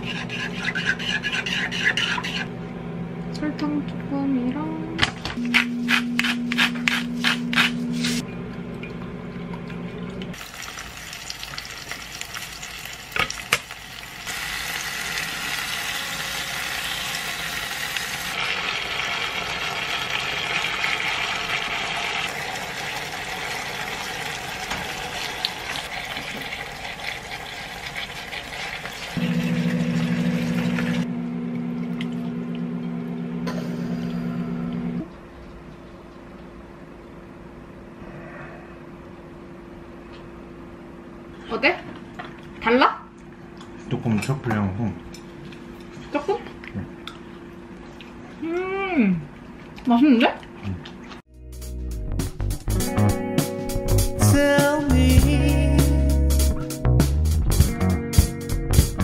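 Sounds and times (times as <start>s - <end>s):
chopsticks beating eggs in a pot: 0.0s - 2.5s
steady low hum: 0.0s - 10.4s
food sizzling and frying: 10.3s - 31.1s.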